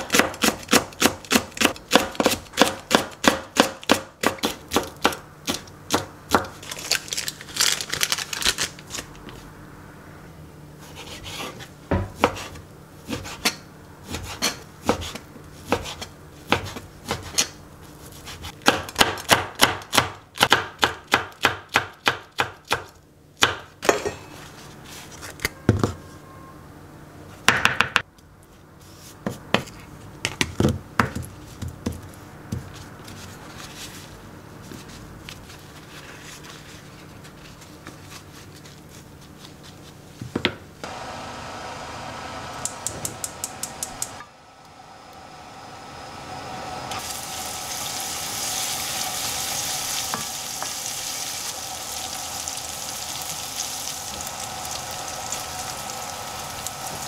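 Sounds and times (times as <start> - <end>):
knife chopping on cutting board: 0.0 - 6.6, 10.8 - 17.6
knife scraping board: 10.8 - 18.6.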